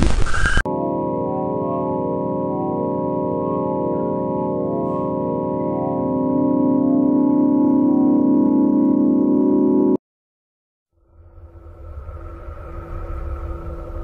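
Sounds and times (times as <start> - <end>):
organ-like drone of held tones: 0.7 - 10.0.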